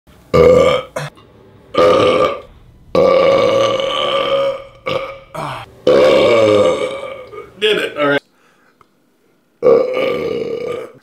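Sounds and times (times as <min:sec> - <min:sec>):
man belching: 0:00.3 - 0:07.6, 0:09.6 - 0:11.0.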